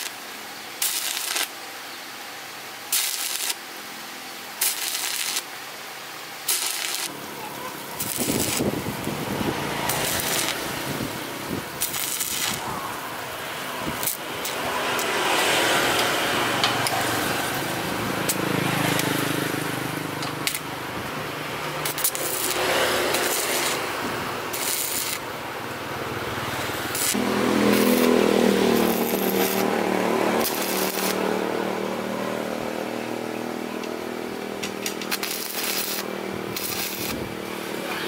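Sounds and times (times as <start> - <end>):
power tool motor running: 6.5 - 12.6, 13.2 - 32.2, 34.2 - 37.8.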